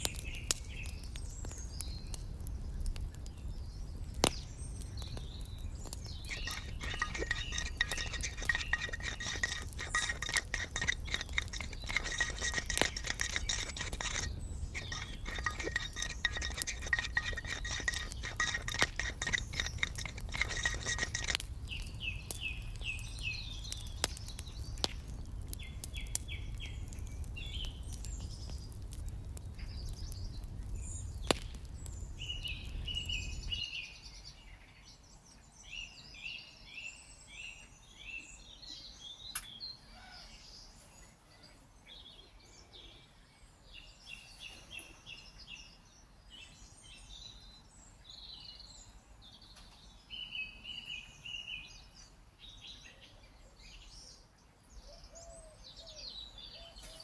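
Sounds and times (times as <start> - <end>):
birds chirping: 0.0 - 57.0
metal spoon clinking on cookware: 6.1 - 21.4.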